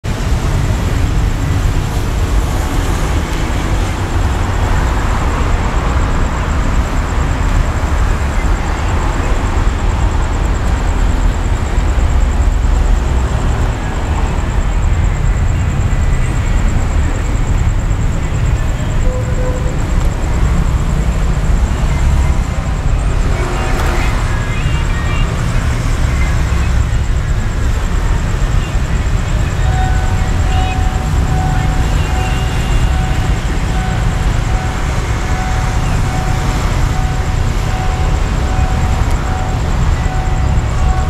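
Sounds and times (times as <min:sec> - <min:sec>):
city traffic hum: 0:00.0 - 0:41.0
diesel railcar idling: 0:00.2 - 0:41.0.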